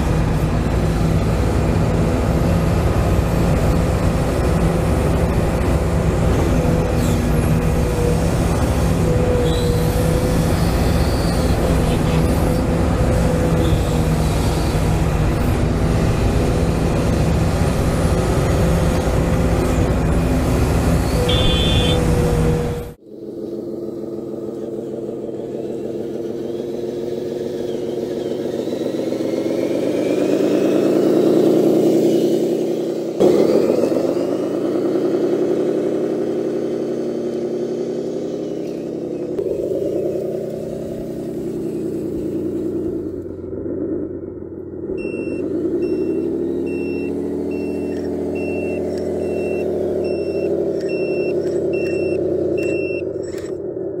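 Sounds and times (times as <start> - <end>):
simulated diesel engine revving: 0.0 - 54.0
reverse beeper: 21.2 - 22.0, 45.0 - 53.5.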